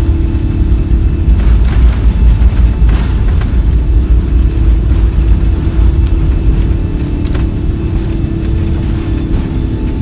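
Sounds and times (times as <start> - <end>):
jet engines deep rumble: 0.0 - 10.0
steady hum: 0.0 - 10.0.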